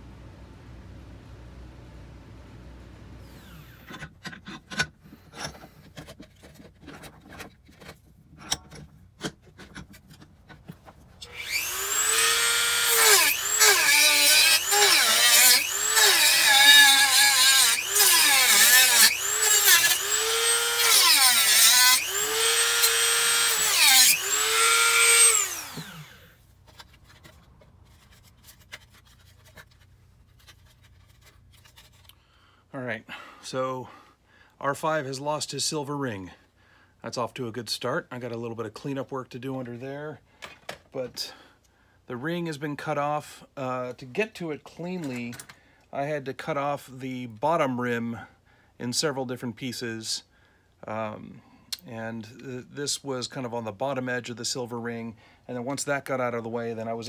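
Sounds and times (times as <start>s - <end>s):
rotary tool motor whine: 3.2s - 3.9s, 11.2s - 26.4s.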